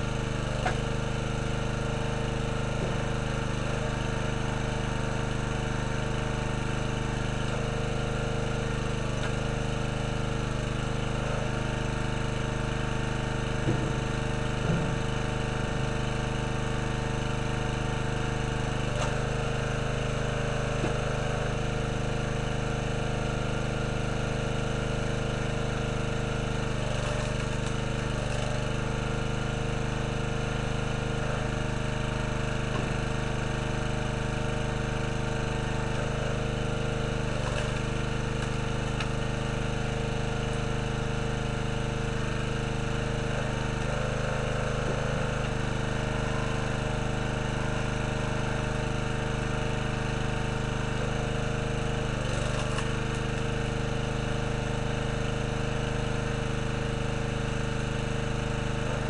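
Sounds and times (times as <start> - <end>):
small gasoline engine running: 0.0 - 59.0
knocks of logs splitting: 0.6 - 1.3, 26.0 - 29.1, 34.2 - 40.8, 52.2 - 53.6.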